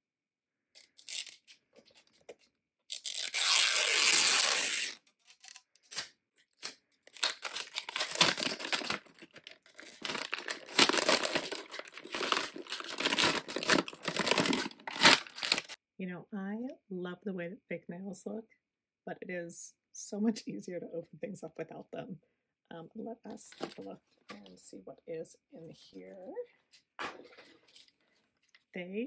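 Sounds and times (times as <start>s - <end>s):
packaging ripping: 0.8s - 2.2s, 2.9s - 15.8s
packaging rustling: 0.8s - 15.8s
plastic wrap crinkling: 0.8s - 15.8s.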